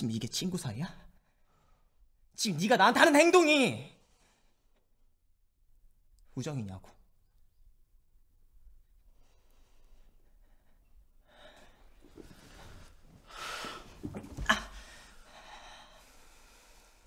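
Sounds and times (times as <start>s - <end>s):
man breathing heavily: 14.8s - 17.0s.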